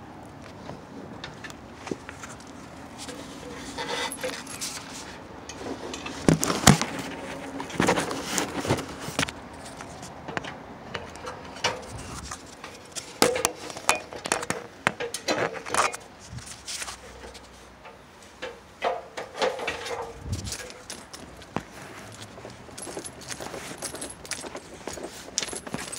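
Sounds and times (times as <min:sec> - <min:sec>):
metallic clinks of ladder: 0:17.2 - 0:21.5, 0:22.1 - 0:25.9.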